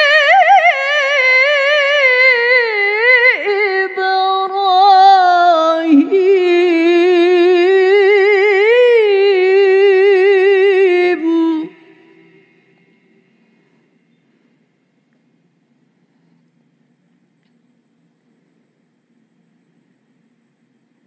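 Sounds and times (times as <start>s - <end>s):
woman reciting melodically: 0.0s - 12.6s.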